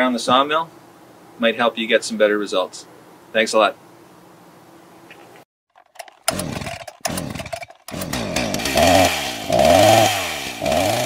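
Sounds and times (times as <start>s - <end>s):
chainsaw starting and revving: 5.8s - 11.0s.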